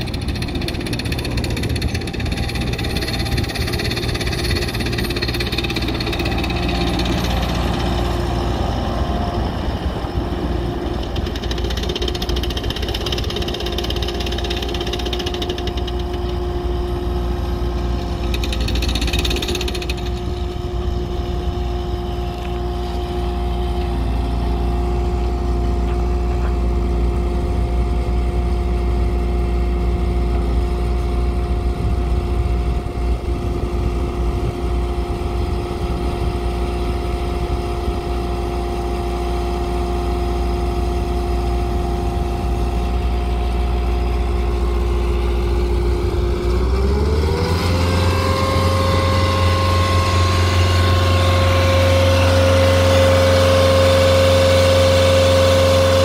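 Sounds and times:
diesel engine revving up: 0:00.0 - 0:25.2, 0:40.3 - 0:56.0
steady mechanical whine: 0:00.0 - 0:56.0.

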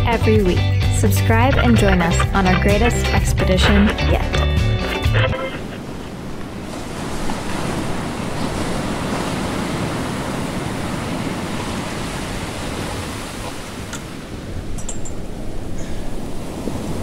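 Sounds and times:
water rushing along a hull: 0:05.2 - 0:17.0
wind: 0:05.3 - 0:17.0.

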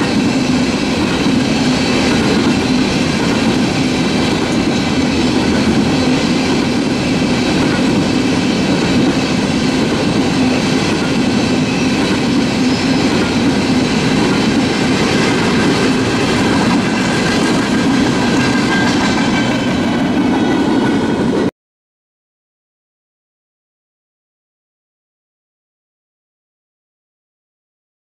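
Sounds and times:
steel wheels clacking on rail: 0:00.0 - 0:21.5.

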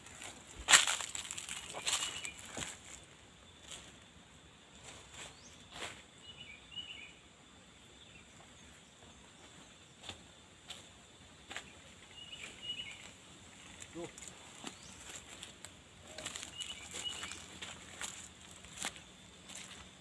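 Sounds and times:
footsteps crunching leaf litter: 0:00.0 - 0:03.0, 0:12.7 - 0:20.0
bird chirps: 0:01.1 - 0:02.6, 0:05.2 - 0:07.2, 0:12.1 - 0:15.3, 0:16.0 - 0:18.1
high-pitched insect drone: 0:09.8 - 0:20.0.

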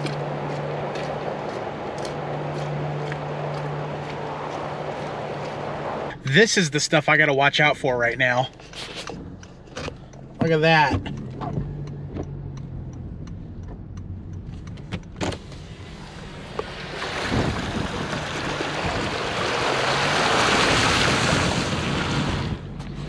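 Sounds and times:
car engine hum: 0:00.0 - 0:23.0
tyre splashing through water: 0:16.6 - 0:22.6.

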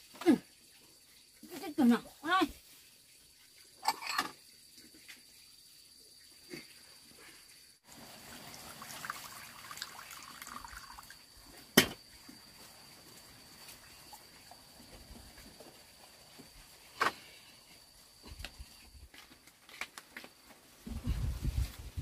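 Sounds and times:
water pouring into ceramic bowl: 0:07.9 - 0:11.3.

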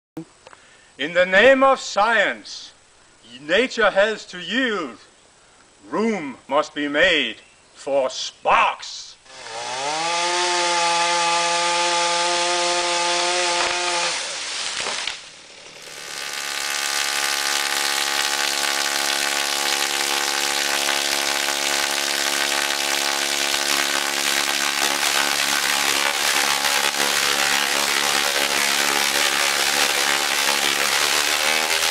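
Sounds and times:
chainsaw revving: 0:09.3 - 0:31.9
electric sparks buzzing: 0:09.3 - 0:31.9.

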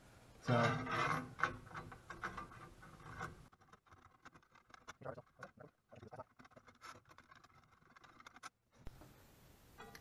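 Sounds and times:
clicks and rubbing of hands on rail: 0:00.9 - 0:08.6.

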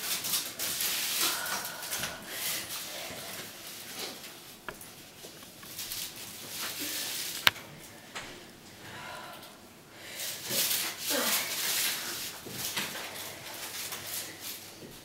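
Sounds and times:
faint rustling and handling: 0:00.0 - 0:08.7.

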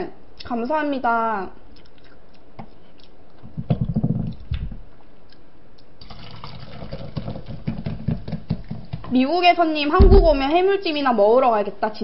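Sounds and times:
cola fizzing into a glass: 0:06.0 - 0:08.5
bottle thumps: 0:10.0 - 0:10.6.

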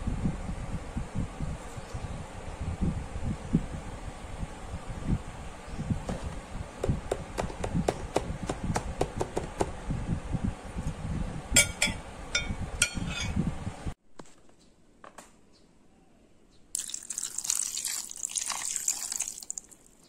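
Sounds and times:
low uneven rumble: 0:00.0 - 0:14.0.

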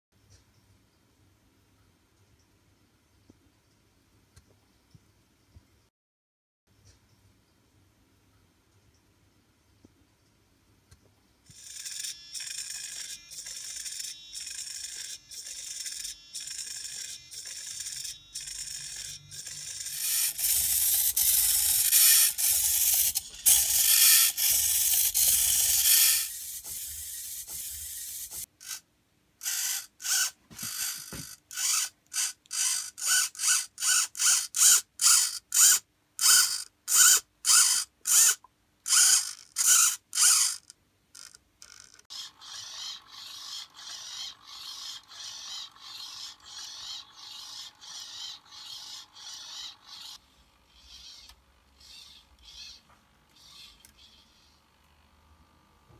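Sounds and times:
servo motors whirring: 0:11.5 - 0:28.8, 0:29.4 - 0:52.8.

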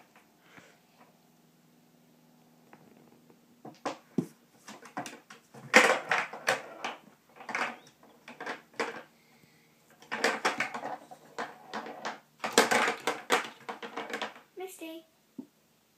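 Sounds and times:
balls knocking on wooden sides: 0:02.7 - 0:09.2, 0:09.9 - 0:14.5
toy pool balls clacking: 0:04.7 - 0:09.1, 0:09.9 - 0:14.4.

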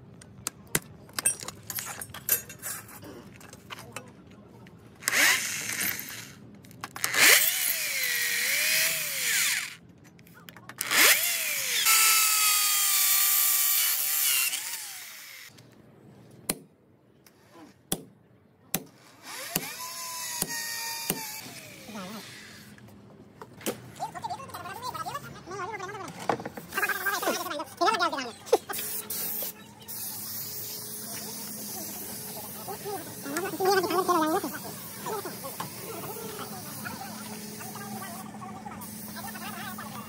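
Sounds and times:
electric drill boring through steel: 0:07.0 - 0:09.8, 0:10.8 - 0:15.5.

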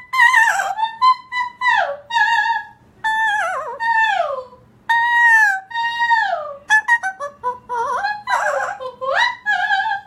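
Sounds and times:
woman singing high notes: 0:00.0 - 0:10.0
parrot singing high notes: 0:04.9 - 0:10.0.

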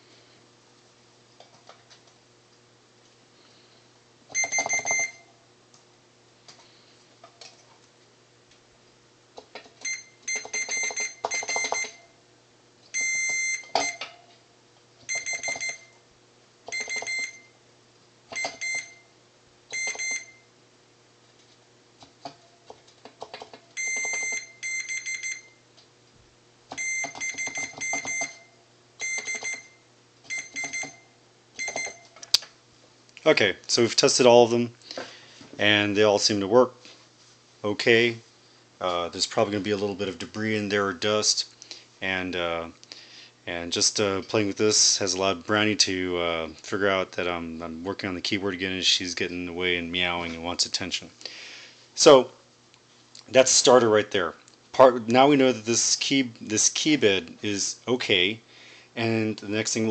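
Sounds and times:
continuity tester beeps: 0:04.3 - 0:05.3, 0:09.8 - 0:12.2, 0:12.9 - 0:14.0, 0:15.1 - 0:16.0, 0:16.7 - 0:17.6, 0:18.3 - 0:19.1, 0:19.7 - 0:20.5, 0:23.8 - 0:25.6, 0:26.7 - 0:32.1.

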